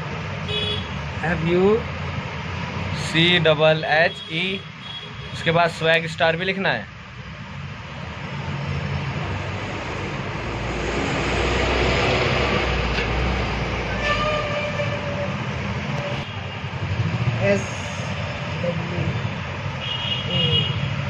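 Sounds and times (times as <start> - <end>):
heavy vehicle rumbling past: 7.3 - 19.8
horn-like tone: 13.9 - 15.4.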